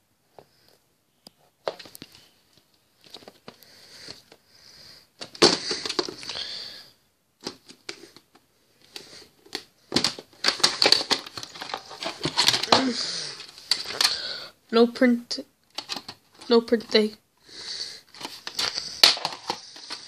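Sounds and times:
plastic case rustling and clicking: 1.6s - 4.4s, 5.2s - 6.4s, 7.4s - 14.2s, 15.7s - 17.0s, 18.1s - 20.0s.

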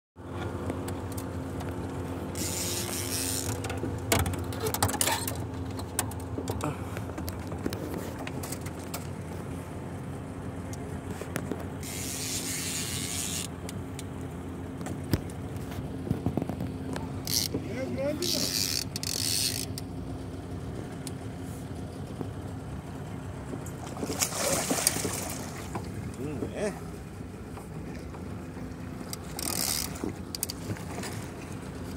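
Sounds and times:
steady low hum: 0.2s - 31.9s
reel drag hissing: 2.3s - 3.6s, 11.8s - 13.5s
fishing reel clicking: 2.4s - 3.6s, 11.8s - 13.5s, 17.2s - 17.6s, 18.2s - 19.8s, 29.1s - 30.6s.

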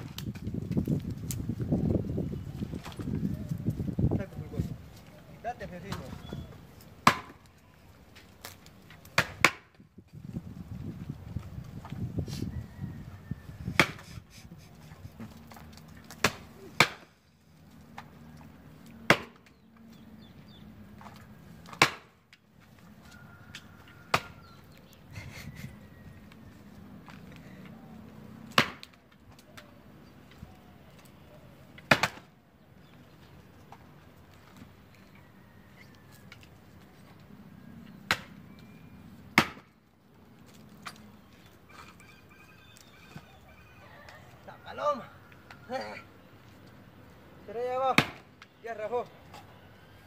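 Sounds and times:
axe chopping logs: 7.0s - 7.5s, 8.4s - 9.8s, 13.7s - 14.1s, 16.0s - 17.2s, 19.0s - 19.6s, 21.6s - 22.3s, 24.1s - 24.4s, 28.5s - 29.1s, 31.8s - 32.3s, 38.0s - 38.4s, 39.3s - 39.8s, 47.8s - 48.3s.

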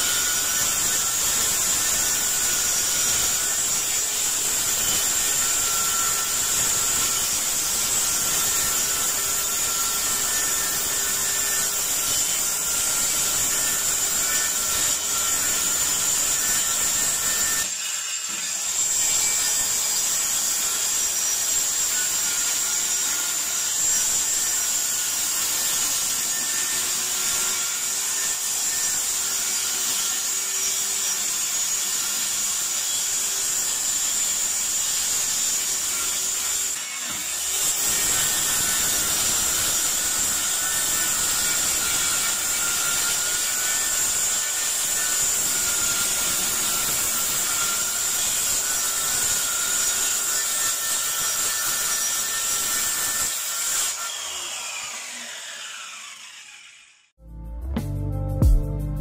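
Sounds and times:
circular saw cutting wood: 0.0s - 57.2s.

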